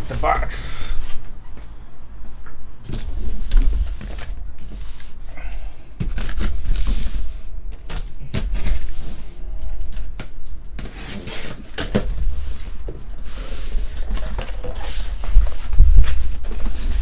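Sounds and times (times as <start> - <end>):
cardboard scraping: 10.8 - 17.0.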